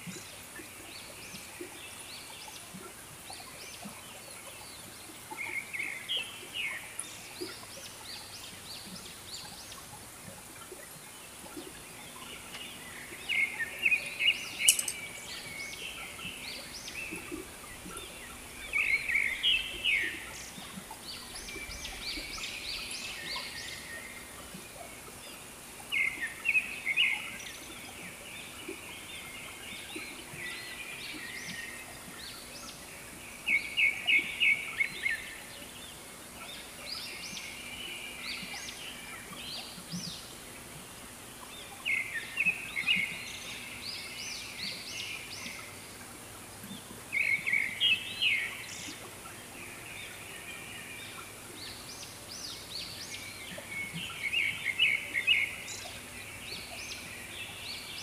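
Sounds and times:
steady high hiss: 4.9s - 28.5s.

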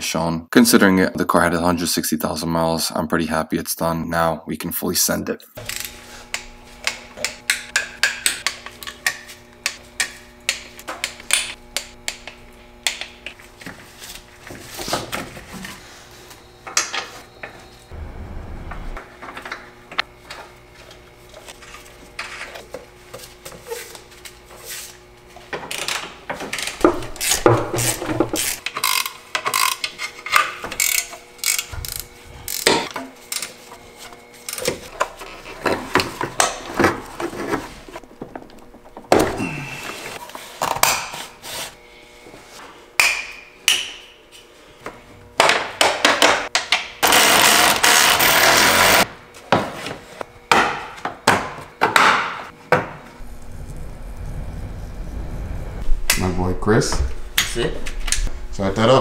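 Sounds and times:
socket ratchet clicking: 28.4s - 29.9s, 30.8s - 32.7s.

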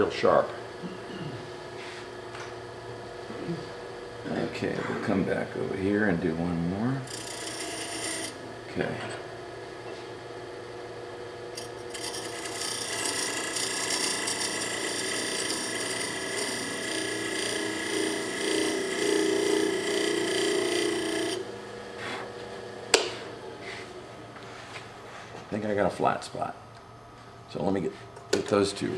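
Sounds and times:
lathe hum: 0.0s - 25.2s
turning tool scraping wood: 7.1s - 8.4s, 11.6s - 21.4s.

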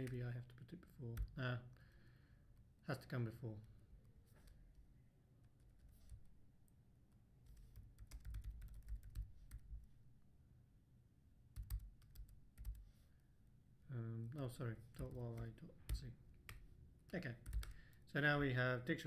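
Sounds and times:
faint keyboard typing: 0.0s - 2.7s, 7.5s - 10.0s, 11.5s - 13.0s, 14.9s - 18.1s.

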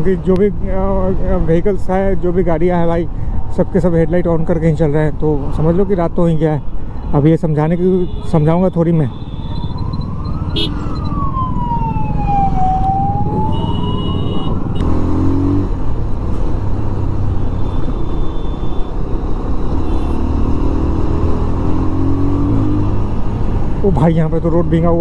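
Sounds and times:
emergency siren wailing: 9.3s - 14.5s.

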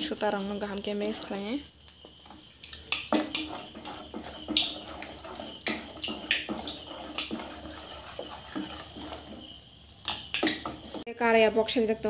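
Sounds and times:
whisk stirring thick batter: 0.2s - 1.6s, 2.2s - 11.0s
whisk clinking on metal bowl: 3.1s - 9.4s.

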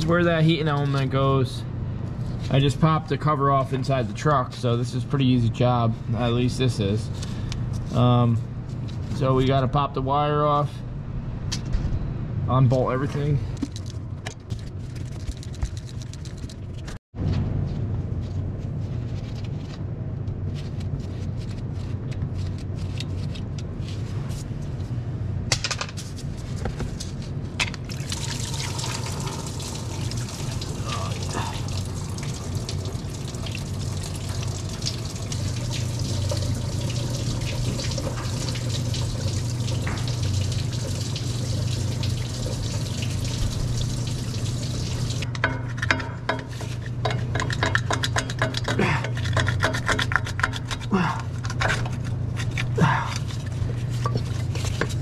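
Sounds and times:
coolant pouring and splattering: 27.8s - 45.3s.

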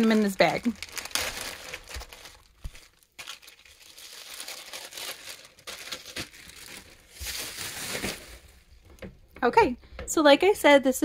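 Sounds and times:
plastic bag crinkling: 0.0s - 8.7s.

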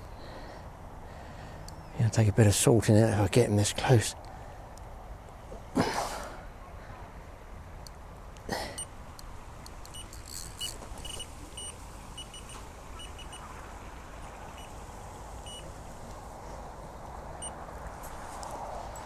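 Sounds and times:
low wind rumble: 0.0s - 19.0s
bite alarm beeping: 9.9s - 13.5s, 15.5s - 15.7s.

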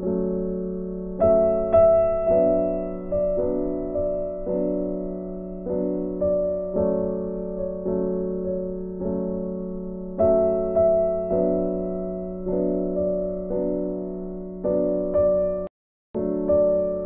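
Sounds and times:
slow gentle piano tune: 0.0s - 17.0s.

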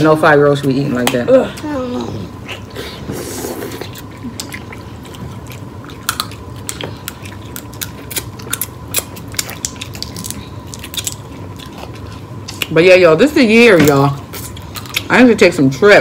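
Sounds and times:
people chewing and biting: 2.1s - 12.8s, 13.8s - 15.2s
wet clicks and smacks: 6.1s - 11.3s.

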